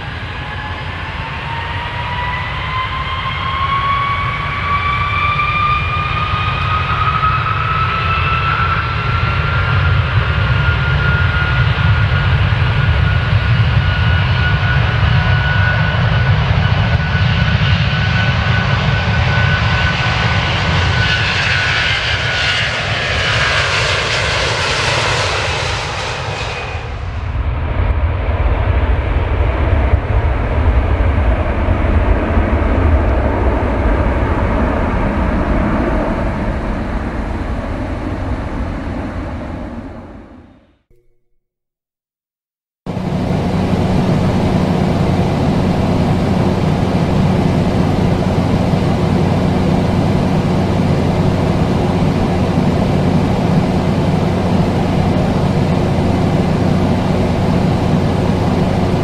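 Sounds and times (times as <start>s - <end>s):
airplane engine whine: 0.0s - 41.4s, 42.9s - 59.0s
heavy low rumble: 42.9s - 59.0s
rushing noise: 42.9s - 59.0s.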